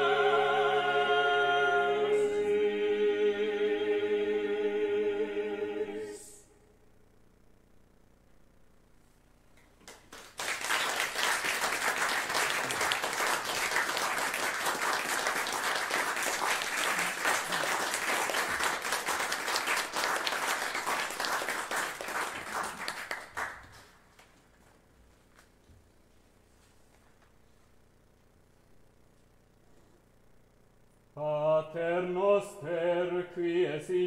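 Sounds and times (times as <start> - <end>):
audience applauding: 9.8 - 24.3.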